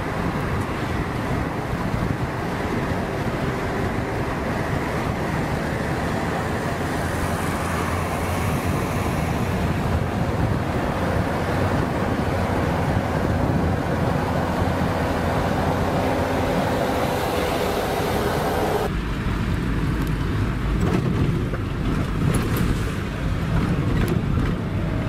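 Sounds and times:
vehicle engine and road noise: 0.0s - 25.0s.

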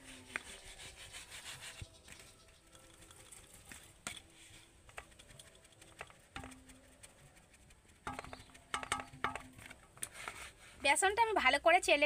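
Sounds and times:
sieve tapping on steel plate: 6.0s - 6.6s, 8.1s - 9.8s.

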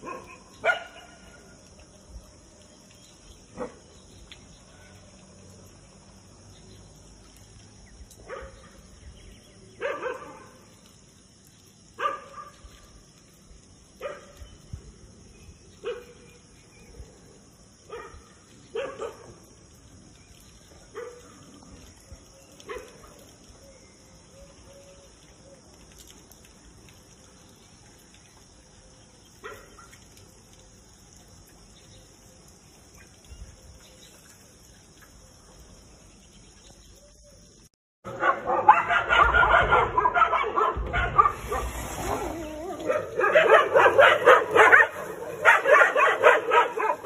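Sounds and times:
dog barking: 0.0s - 1.2s, 8.3s - 8.6s, 9.8s - 10.6s, 12.0s - 12.6s, 14.0s - 14.4s, 15.8s - 16.2s, 17.9s - 19.4s, 21.0s - 21.2s, 38.1s - 47.0s
dog yelping: 38.2s - 47.0s.

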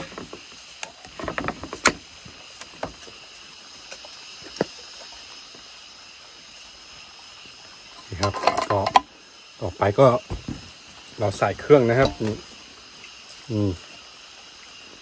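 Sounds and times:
steady high hiss: 0.0s - 15.0s
cooking utensils clicking: 8.0s - 9.1s.

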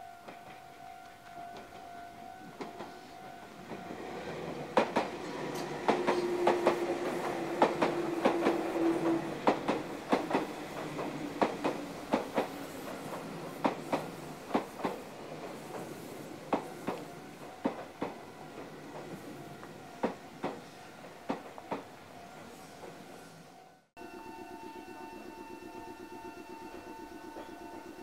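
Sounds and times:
train rumble: 0.0s - 28.0s
train wheels clacking over rail joints: 0.2s - 21.9s
whine: 24.0s - 28.0s.

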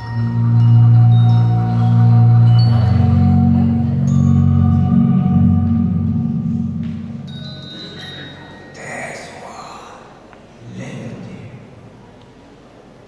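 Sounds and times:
bell-like ringing tones: 0.0s - 5.9s, 7.2s - 9.1s
sustained low music notes: 0.0s - 9.0s.

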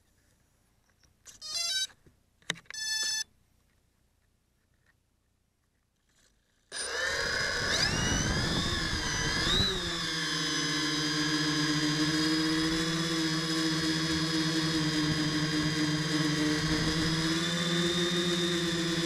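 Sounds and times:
drone motors whining: 6.7s - 19.0s.

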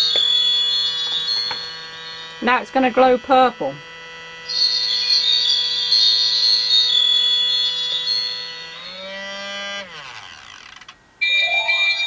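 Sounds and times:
rising synthetic tone: 11.2s - 12.0s
electronic magic sound effects: 11.3s - 12.0s.

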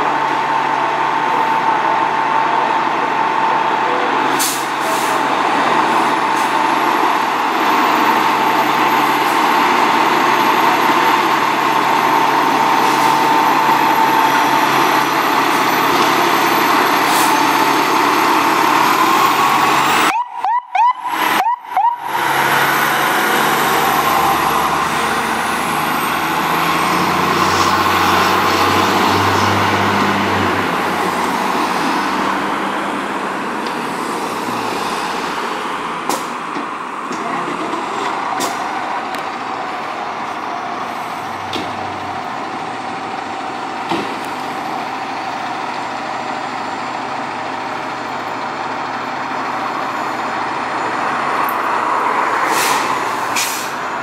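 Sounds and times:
fire engine idling: 0.0s - 28.7s, 35.2s - 54.0s
fire engine pulling away: 0.0s - 54.0s.

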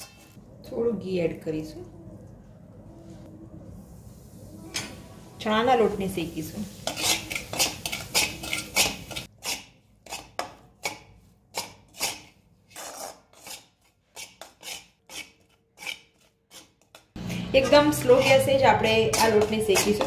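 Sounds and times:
steel spoon scraping iron pan: 0.0s - 0.4s, 6.6s - 20.0s.

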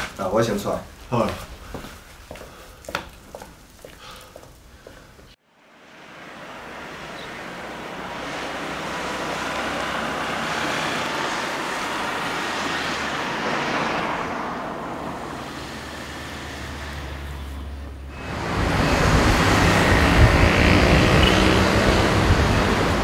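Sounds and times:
road traffic rushing: 4.0s - 23.0s.

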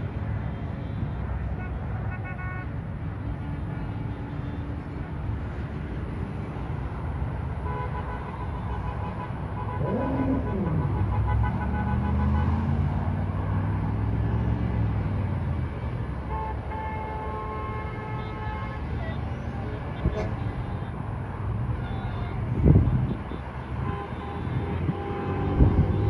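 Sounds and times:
cars and trucks passing: 0.0s - 26.0s
car horns honking: 0.6s - 2.8s, 7.5s - 12.9s, 16.2s - 26.0s
vehicle engine drone: 8.4s - 16.2s.

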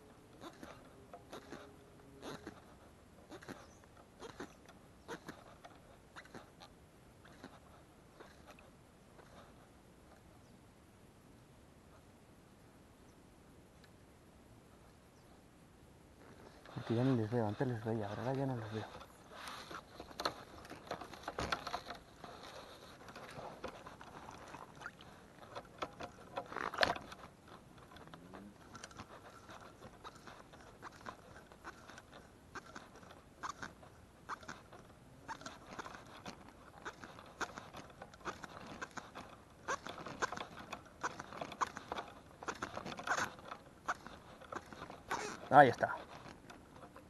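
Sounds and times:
fly line rasping off rod: 16.2s - 47.0s.

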